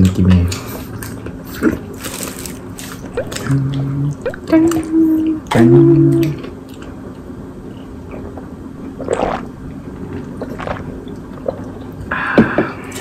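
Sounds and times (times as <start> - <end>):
gulping and swallowing: 3.1 - 4.9, 8.8 - 12.1.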